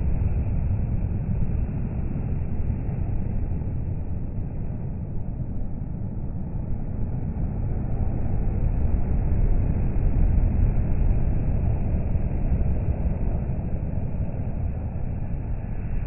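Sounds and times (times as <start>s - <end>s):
steady traffic noise: 0.0s - 16.0s.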